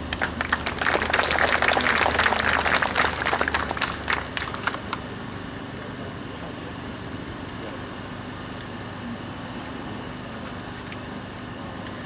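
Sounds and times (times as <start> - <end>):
crowd applauding: 0.0 - 5.1.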